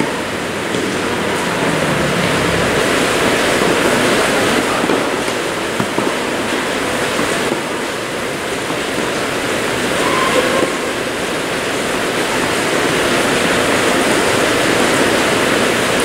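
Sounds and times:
loud rushing noise: 0:00.0 - 0:16.0.

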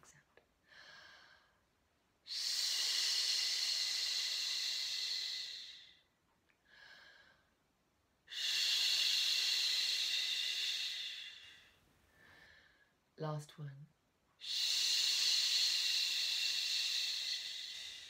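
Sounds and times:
woman breathing out shh: 0:02.3 - 0:06.0, 0:08.3 - 0:13.0, 0:14.4 - 0:18.0
faint breath in: 0:06.6 - 0:07.6, 0:08.3 - 0:13.0, 0:14.4 - 0:18.0.

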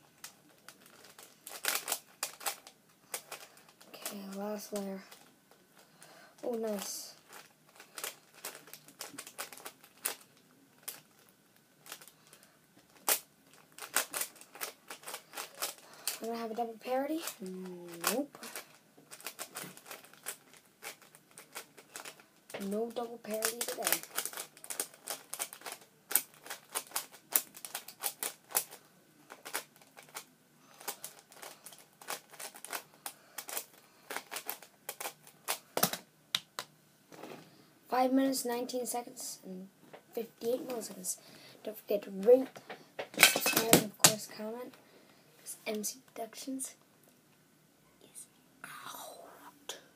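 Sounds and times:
speed cube plastic clicks: 0:00.2 - 0:03.8, 0:13.0 - 0:16.2, 0:23.4 - 0:36.7.

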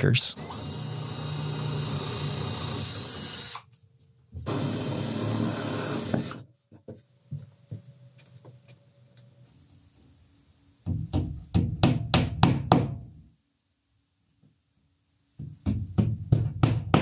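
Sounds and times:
cordless drill boring into wall: 0:00.4 - 0:03.7, 0:04.4 - 0:06.4.

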